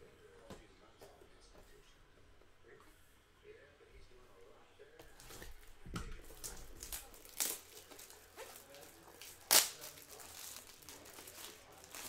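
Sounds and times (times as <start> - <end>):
plastic wrapping crinkling and tearing: 6.3 - 12.0.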